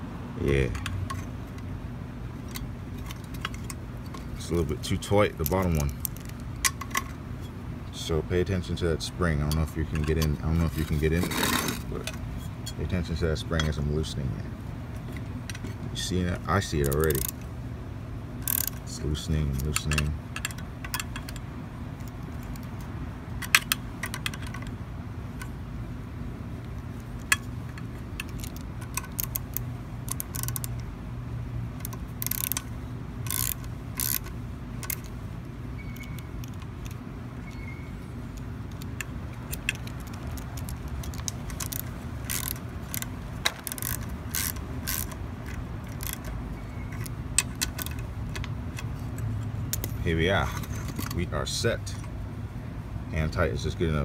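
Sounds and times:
socket ratchet ticking: 0:16.2 - 0:17.5, 0:18.4 - 0:25.6, 0:26.7 - 0:51.2
metallic clicks of screwdriver: 0:27.2 - 0:30.9, 0:31.8 - 0:35.2, 0:38.3 - 0:50.0.

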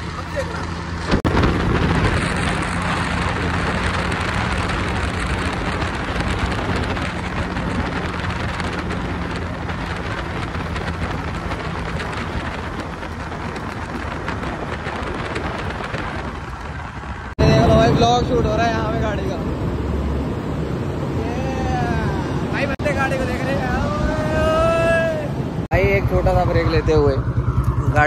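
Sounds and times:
scooter engine running: 0:00.0 - 0:17.3, 0:25.7 - 0:28.0
wind over microphone: 0:00.0 - 0:28.0.

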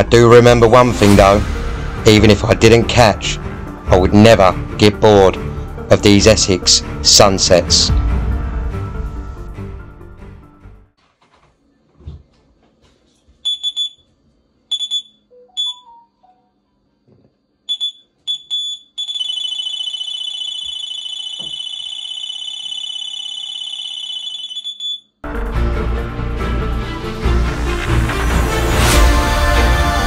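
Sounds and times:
bite alarm bleeps: 0:13.5 - 0:14.0, 0:14.7 - 0:16.0, 0:17.7 - 0:25.2
continuous high alarm tone: 0:14.7 - 0:15.9, 0:17.7 - 0:25.2.

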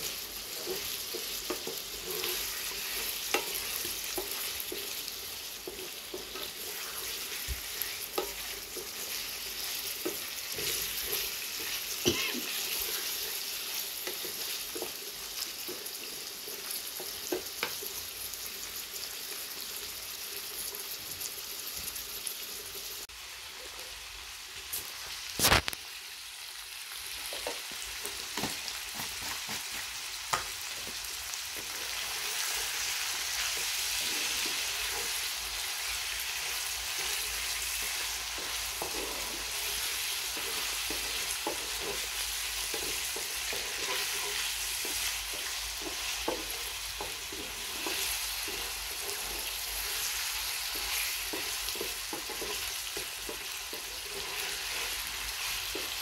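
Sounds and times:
wooden spoon scraping a pan: 0:00.0 - 0:18.0, 0:30.9 - 0:56.0
meat sizzling in a frying pan: 0:00.0 - 0:56.0.

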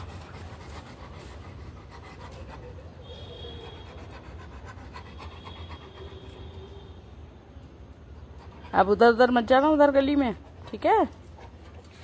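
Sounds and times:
dog panting: 0:00.0 - 0:06.5.

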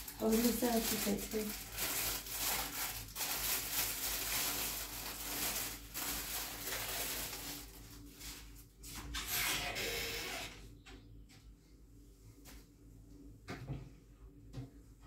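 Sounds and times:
plastic packaging crinkling: 0:00.0 - 0:08.6.

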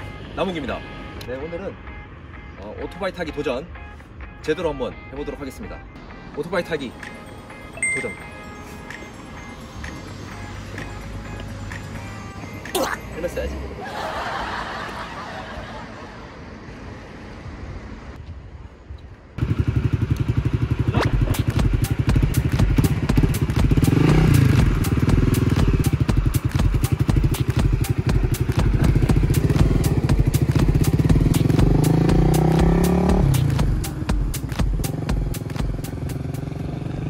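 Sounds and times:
motorcycle engine revving: 0:19.4 - 0:37.0.

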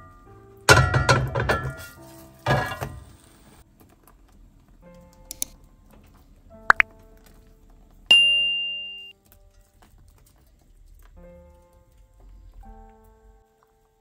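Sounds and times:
soft background music: 0:00.0 - 0:14.0
bright bell ding: 0:08.1 - 0:09.1.

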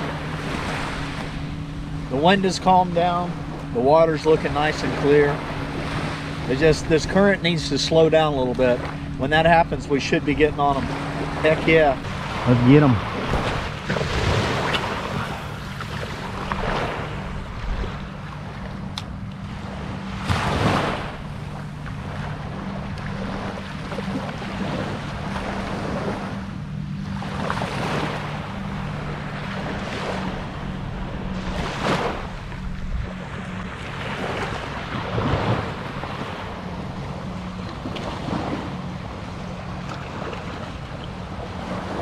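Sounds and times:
wind on microphone: 0:00.0 - 0:18.2, 0:28.9 - 0:39.2
small waves washing on sand: 0:00.0 - 0:26.4, 0:27.0 - 0:42.0
low steady hum: 0:00.0 - 0:42.0.

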